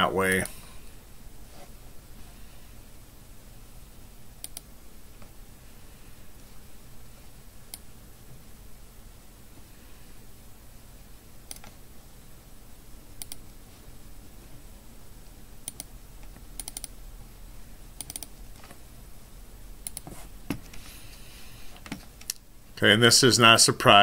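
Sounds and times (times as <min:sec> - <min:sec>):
faint low hum: 0:00.0 - 0:24.0
computer mouse clicking: 0:04.4 - 0:04.7, 0:11.5 - 0:11.8, 0:13.2 - 0:13.4, 0:15.6 - 0:17.0, 0:18.0 - 0:18.8, 0:19.8 - 0:20.8.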